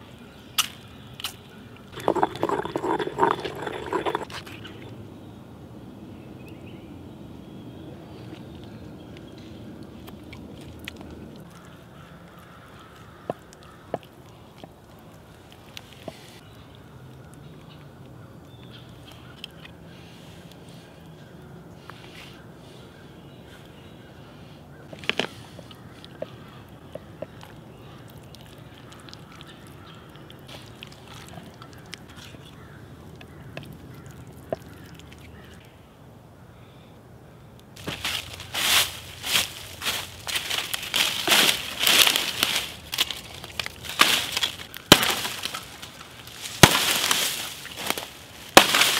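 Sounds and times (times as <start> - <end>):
outdoor background: 0.0 - 48.9
dry leaves crunching and rustling: 37.8 - 48.9.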